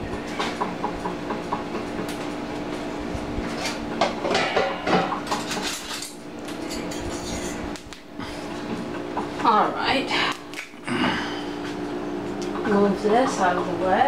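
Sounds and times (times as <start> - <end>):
steady low hum: 0.0 - 14.0
dishes and utensils clattering: 3.6 - 7.6.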